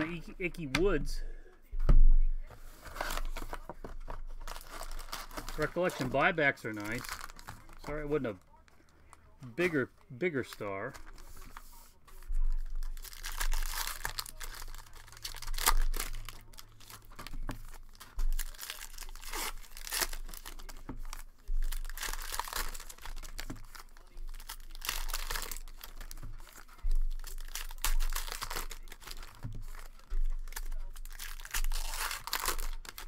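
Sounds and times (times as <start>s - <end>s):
cards being handled: 2.5s - 33.0s
wrappers tearing and crinkling: 2.8s - 33.0s.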